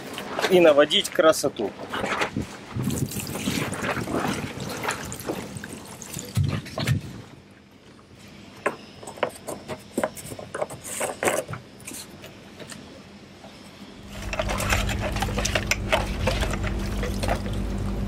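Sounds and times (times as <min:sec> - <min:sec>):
low hum with rushing noise: 0:12.9 - 0:18.0.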